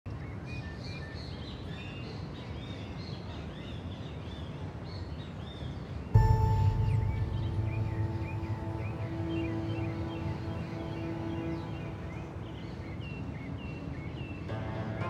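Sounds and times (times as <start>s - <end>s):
low rumble: 6.2s - 12.9s
birds chirping: 6.2s - 15.0s
music with sustained tones: 6.2s - 15.0s.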